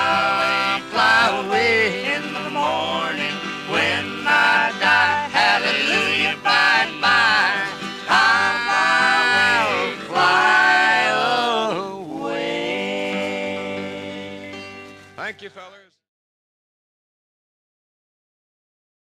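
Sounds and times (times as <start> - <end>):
person singing long notes: 0.0 - 14.8
guitar: 0.0 - 15.9.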